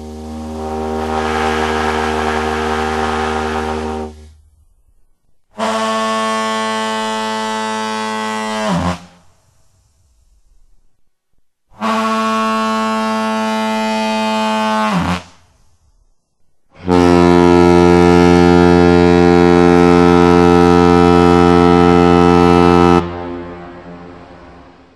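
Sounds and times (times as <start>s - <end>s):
cartoon foghorn blasts: 0.0s - 4.4s, 11.8s - 15.4s, 16.8s - 24.9s.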